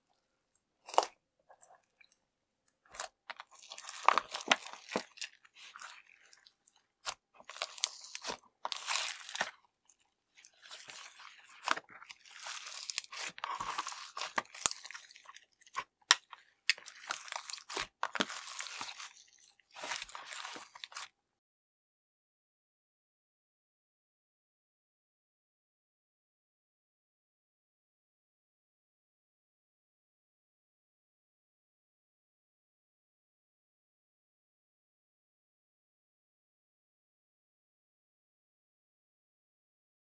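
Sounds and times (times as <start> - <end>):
slime being squished by hand: 2.9 - 21.1.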